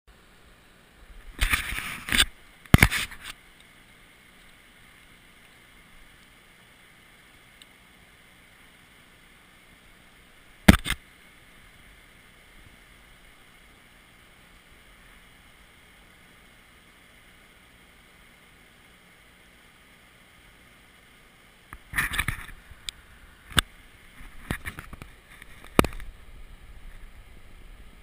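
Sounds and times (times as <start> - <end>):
rocky stream rushing: 1.0 - 28.0
camera handling rustling: 1.4 - 3.4, 10.7 - 11.0, 21.8 - 22.6, 23.5 - 26.1.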